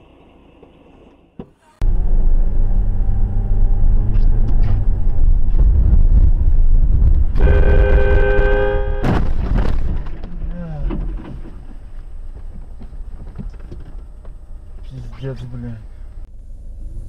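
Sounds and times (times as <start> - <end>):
car driving rumble: 0.0 - 17.0
car horn honk: 7.4 - 9.2.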